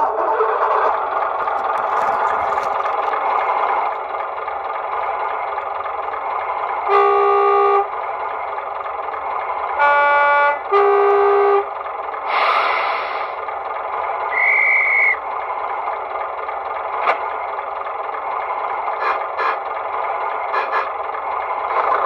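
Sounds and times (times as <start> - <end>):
diesel engine idling: 0.0 - 22.0
train horn toots: 6.8 - 7.9, 9.7 - 11.7, 19.0 - 19.6, 20.5 - 20.9
short hiss: 12.3 - 13.4.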